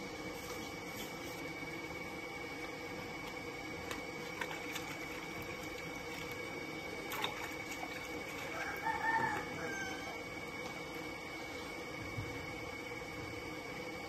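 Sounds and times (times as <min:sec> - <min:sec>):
steady hum: 0:00.0 - 0:14.0
water sloshing in a bucket: 0:00.1 - 0:13.8.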